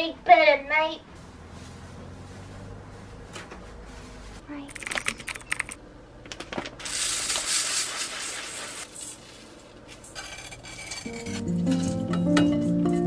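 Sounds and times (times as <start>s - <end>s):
music: 11.1s - 13.0s.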